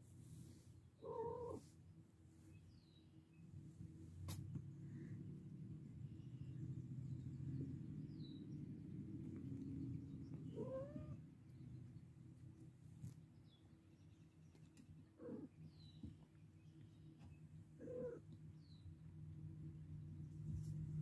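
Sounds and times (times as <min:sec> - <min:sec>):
low steady hum: 0:00.0 - 0:21.0
kitten meowing: 0:10.5 - 0:11.2.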